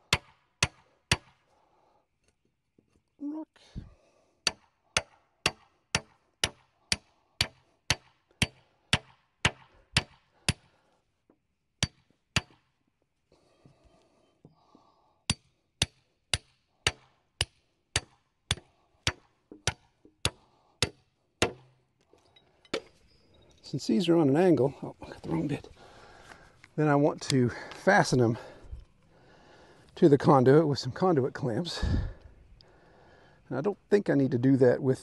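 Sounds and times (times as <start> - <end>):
hammer striking metal stake: 0.1 - 1.4, 4.4 - 10.7, 11.8 - 12.7, 15.3 - 21.8.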